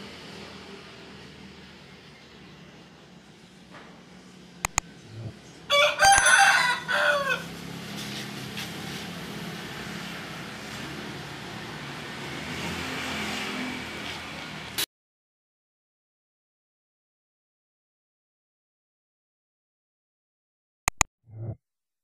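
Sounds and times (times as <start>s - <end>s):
low background hum: 3.7s - 5.7s
sharp clicks: 4.6s - 5.3s, 20.9s - 21.1s
rooster crowing: 5.7s - 7.6s.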